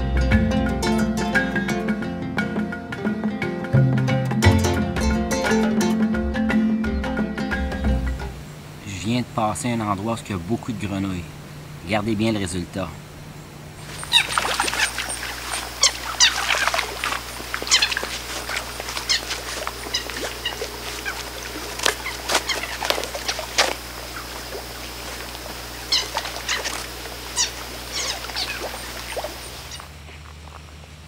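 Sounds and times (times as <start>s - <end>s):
frogs squeaking: 7.5s - 30.7s
faint insect buzz: 12.9s - 30.6s
frogs plopping into water: 13.8s - 30.6s.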